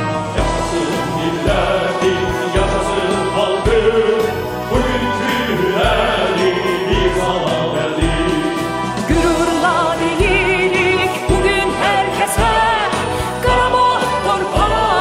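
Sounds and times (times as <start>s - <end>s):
instrumental pop backing track: 0.0s - 15.0s.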